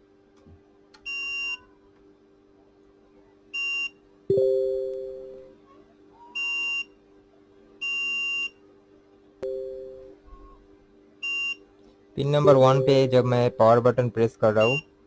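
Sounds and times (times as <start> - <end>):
ringing two-tone ding: 12.4 - 13.7
multimeter continuity beeps: 12.4 - 13.9, 14.6 - 14.9.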